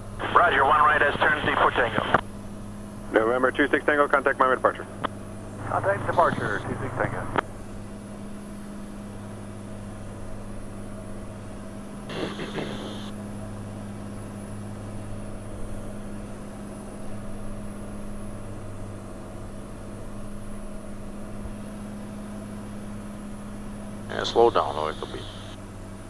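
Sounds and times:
propeller plane engine droning: 0.0 - 26.0
brief voice: 12.1 - 13.1.

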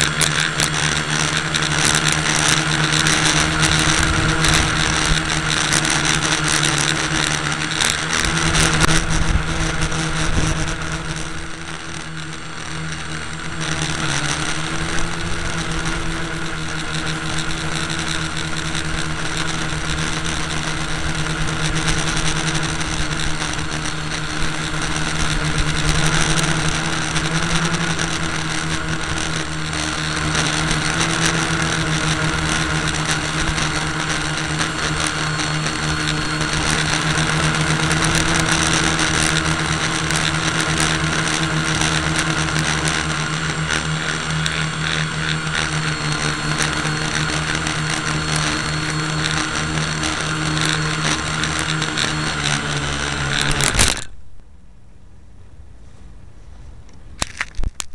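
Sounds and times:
motor humming: 0.0 - 54.5
small clicks and rattles: 56.9 - 57.9.

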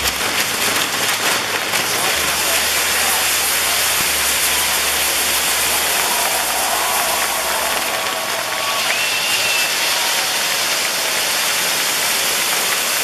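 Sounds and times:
firework wheel hissing and crackling: 0.0 - 13.0.

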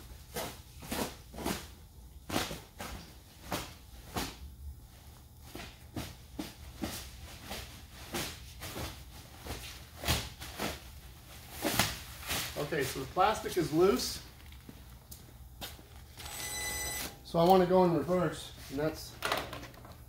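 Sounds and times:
footsteps on concrete floor: 14.0 - 16.2.

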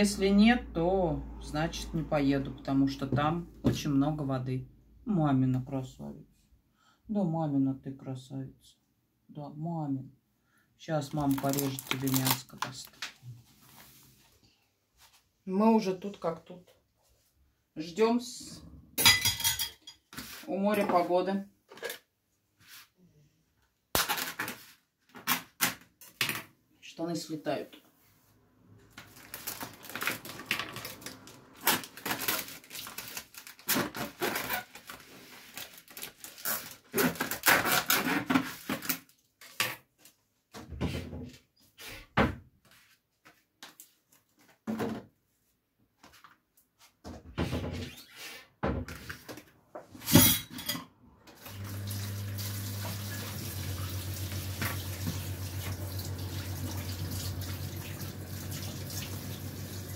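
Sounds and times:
dishes clattering: 19.0 - 20.1
running tap water: 51.4 - 59.9.

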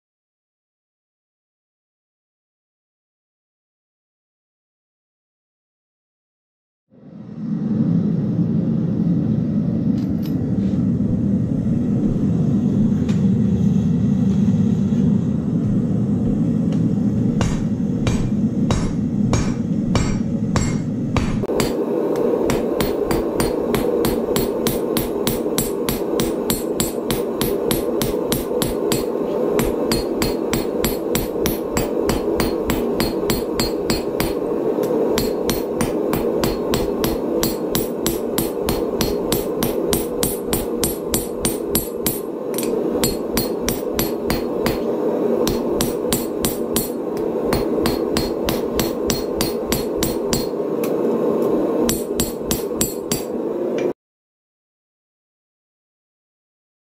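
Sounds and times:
steady low rumble: 6.9 - 53.8
hammer striking steel on anvil: 17.4 - 50.6, 51.8 - 53.4.

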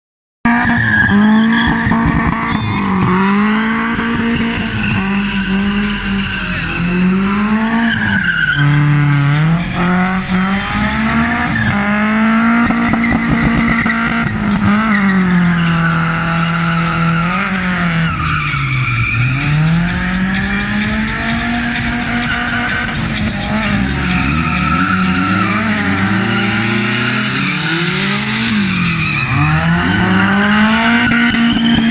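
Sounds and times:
car engine revving: 0.4 - 31.9
tyres squealing and skidding: 0.5 - 31.9.

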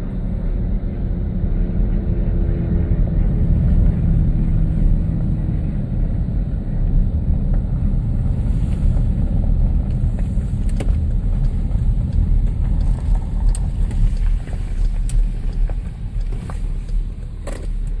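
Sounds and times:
car engine and tyre rumble: 0.0 - 18.0.

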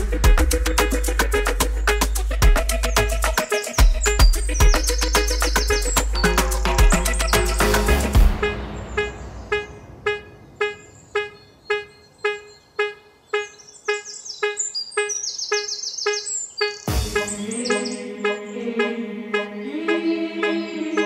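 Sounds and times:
repeating plucked note: 0.0 - 13.6
high bird-like chirps: 1.7 - 18.6.

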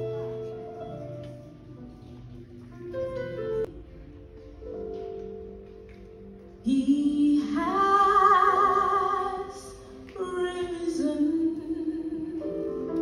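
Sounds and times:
soft instrumental accompaniment: 0.0 - 13.0
woman singing: 6.6 - 13.0.

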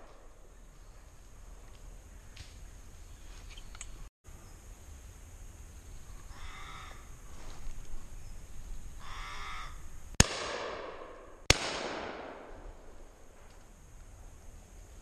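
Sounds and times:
shotgun shots echoing: 10.2 - 13.0.

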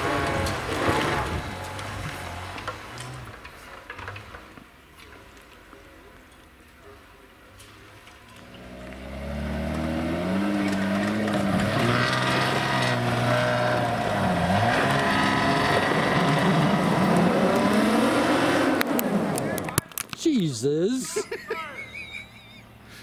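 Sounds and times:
engine revving hard: 8.6 - 19.6.

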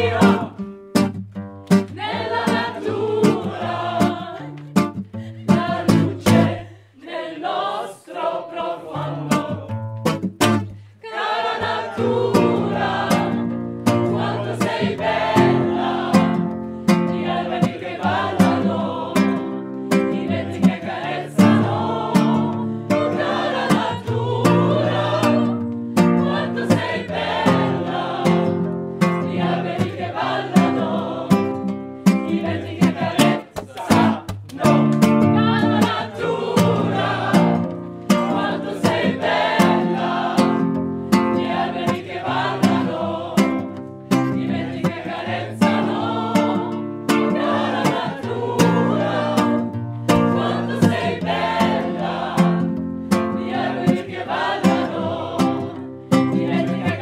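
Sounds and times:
group singing: 0.0 - 0.8, 1.8 - 10.0, 11.0 - 57.0
strummed acoustic guitar: 0.0 - 6.7, 9.0 - 10.9, 11.6 - 57.0.

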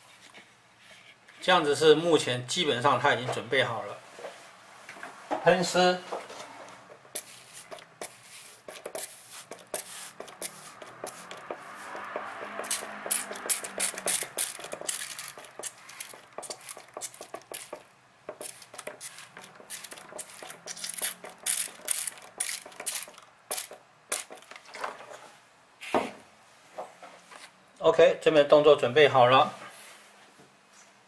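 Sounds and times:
spray bottle squirting: 7.1 - 11.7, 12.5 - 24.5.

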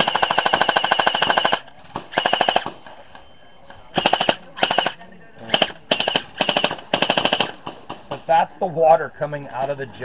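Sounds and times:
gel blaster firing bursts: 0.0 - 2.8, 3.9 - 7.6.

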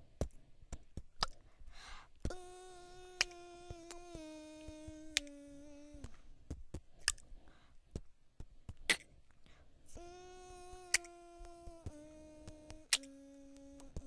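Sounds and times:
person humming: 2.2 - 6.3, 9.9 - 14.0
sharp clicks: 12.4 - 14.0.

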